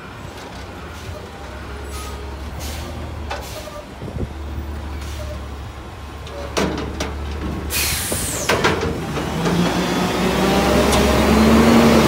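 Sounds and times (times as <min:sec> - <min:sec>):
garbage truck engine running: 0:00.0 - 0:12.0
metal clanks of dumpster lift: 0:06.1 - 0:10.0.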